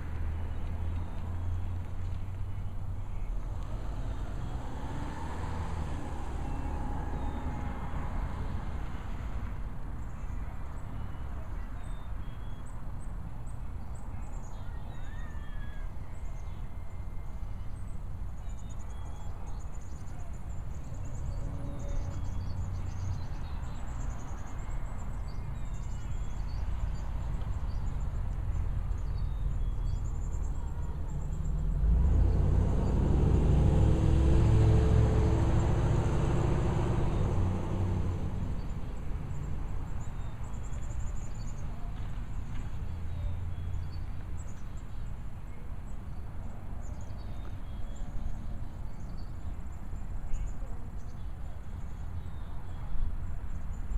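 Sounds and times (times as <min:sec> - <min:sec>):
car driving past: 0:03.4 - 0:09.7, 0:26.7 - 0:41.0.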